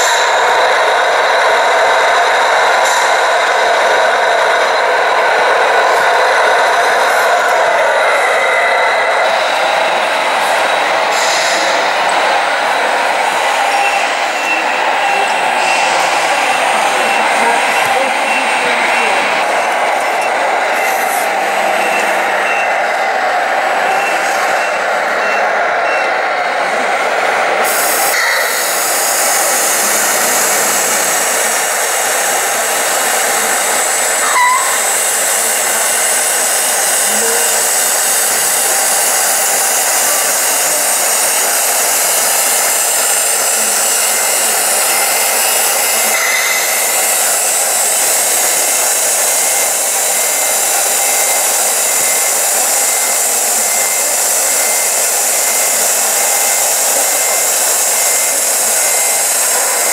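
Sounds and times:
small hydraulic pump whirring: 0:02.4 - 0:23.1.

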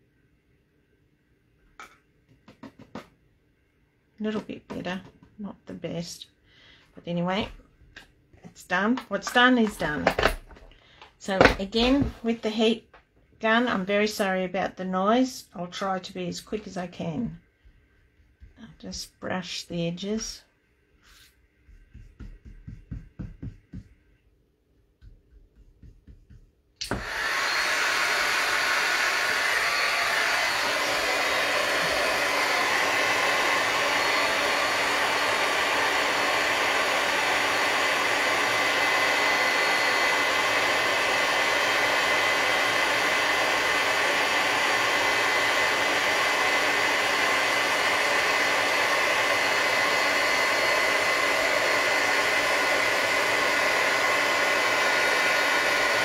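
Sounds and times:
heat gun blowing air: 0:26.8 - 0:56.0
high fan whine: 0:27.0 - 0:56.0.

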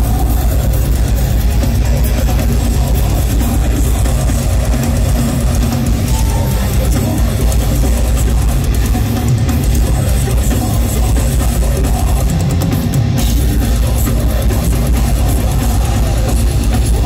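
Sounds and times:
metal band playing live: 0:00.0 - 0:17.0.

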